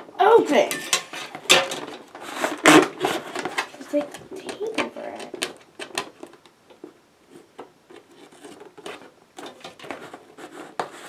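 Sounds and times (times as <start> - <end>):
soft scrapes and taps: 6.7 - 11.0.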